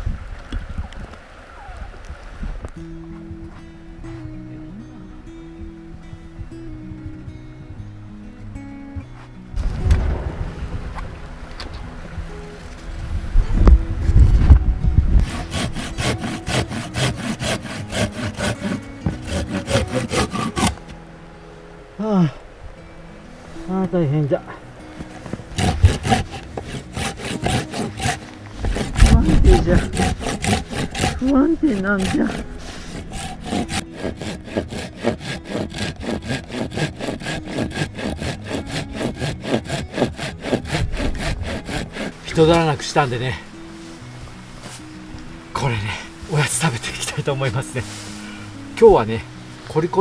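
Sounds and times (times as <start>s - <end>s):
low rumble: 9.6s - 15.4s
hand saw cutting log: 15.2s - 20.9s, 25.5s - 43.2s.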